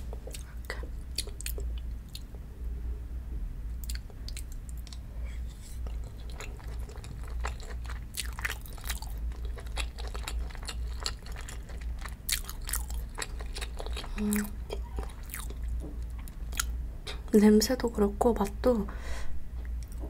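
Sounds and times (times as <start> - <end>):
wet chewing and mouth smacks: 0.1 - 2.3, 3.8 - 5.1, 5.8 - 16.8
person humming: 14.1 - 14.7.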